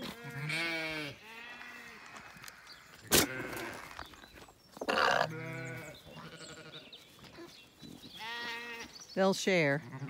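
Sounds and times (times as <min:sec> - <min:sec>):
sheep bleating: 0:00.0 - 0:02.3, 0:04.9 - 0:06.9, 0:08.2 - 0:08.9, 0:09.8 - 0:10.0.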